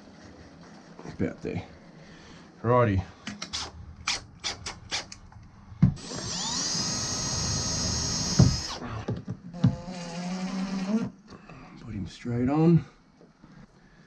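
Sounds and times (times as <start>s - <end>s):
cordless drill whining: 6.0s - 8.9s, 9.6s - 11.1s.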